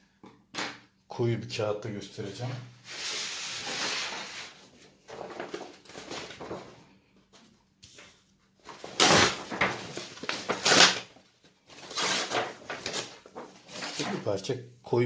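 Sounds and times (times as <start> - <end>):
paper rustling: 2.9 - 14.0.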